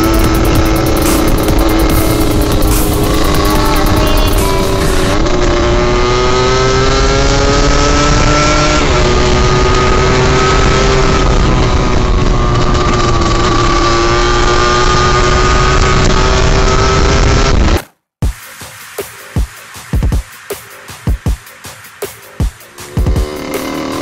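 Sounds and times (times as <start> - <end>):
dirt bike engines accelerating: 0.0 - 17.5, 22.7 - 24.0
wind rumbling on microphone: 8.1 - 14.0.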